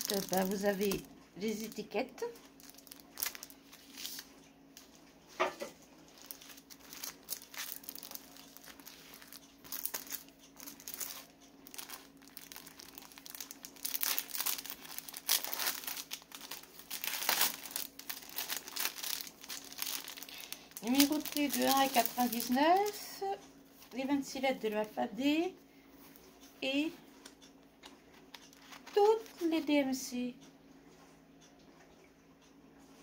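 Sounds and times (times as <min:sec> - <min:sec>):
plastic bag crinkling: 0:00.0 - 0:04.3, 0:06.0 - 0:23.2, 0:28.2 - 0:29.6.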